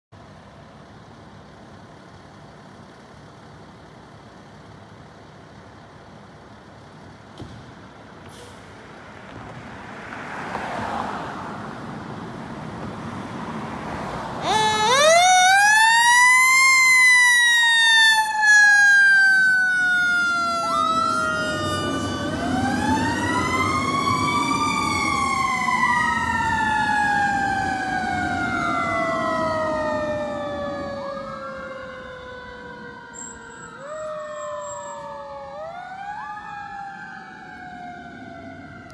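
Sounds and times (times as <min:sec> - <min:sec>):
fire truck engine running: 0:00.2 - 0:09.7, 0:11.6 - 0:38.9
mechanical siren wailing: 0:14.4 - 0:38.9.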